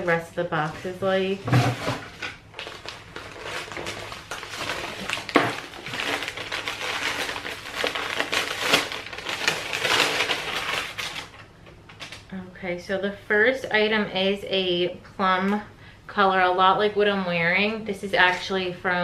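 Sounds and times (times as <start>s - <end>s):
packaging rustling and crinkling: 0.5s - 12.3s.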